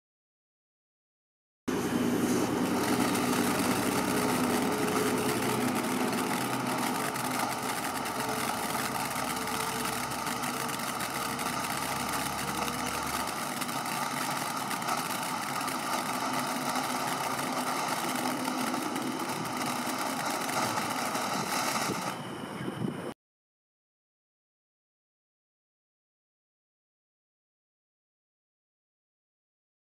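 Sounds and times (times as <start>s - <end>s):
fine crackle of sparks: 1.7s - 22.3s
firework fountain hissing: 1.7s - 23.0s.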